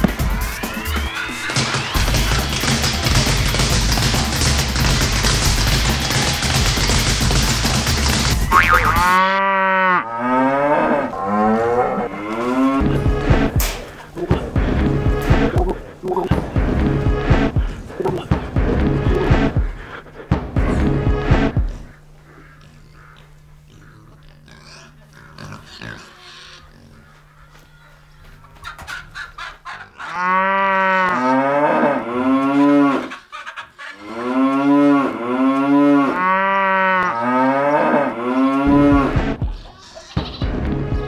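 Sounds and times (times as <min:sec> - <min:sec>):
cow mooing: 0:08.4 - 0:13.4, 0:30.0 - 0:33.2, 0:34.0 - 0:39.2.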